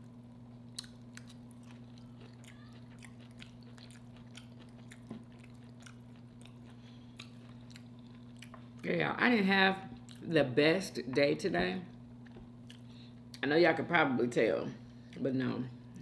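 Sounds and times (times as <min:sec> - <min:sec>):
steady low hum: 0:00.0 - 0:16.0
person chewing food: 0:00.6 - 0:08.9, 0:09.9 - 0:10.2, 0:12.2 - 0:13.4.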